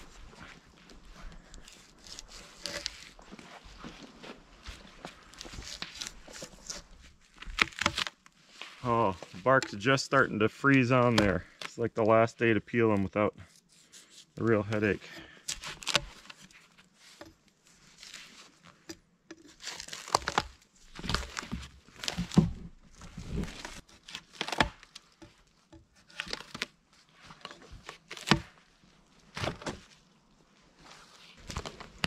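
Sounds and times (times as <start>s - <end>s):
bark scraping and tearing off log: 1.4s - 3.4s, 5.0s - 8.4s, 14.8s - 28.6s, 31.3s - 32.0s.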